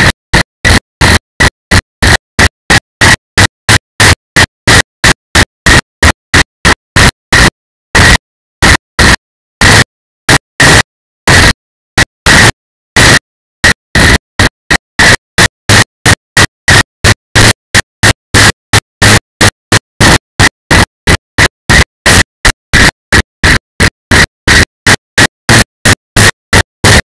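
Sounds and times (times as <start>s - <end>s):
static noise bursts: 0.0s - 27.0s.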